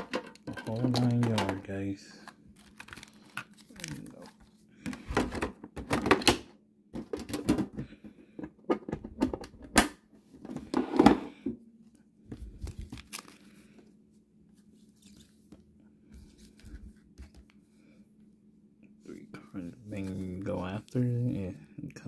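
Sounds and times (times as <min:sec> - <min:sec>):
faint steady hum: 0:00.0 - 0:22.0
foil packaging crinkling: 0:02.5 - 0:04.6, 0:12.5 - 0:13.6.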